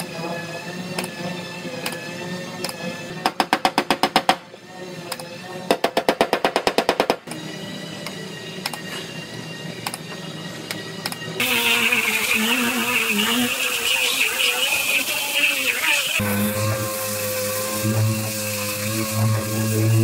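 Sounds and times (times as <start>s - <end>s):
air grinder whirring on metal: 7.2s - 20.0s.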